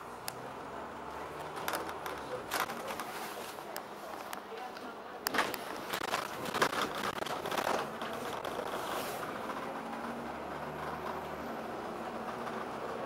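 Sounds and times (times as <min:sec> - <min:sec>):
low engine hum: 0:00.0 - 0:13.0
clicks and rattles inside bus: 0:00.1 - 0:13.0.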